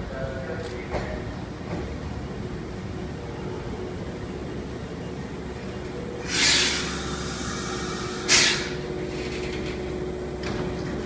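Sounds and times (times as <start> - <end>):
train hum: 0.0 - 11.0
compressed air hiss: 6.2 - 8.8.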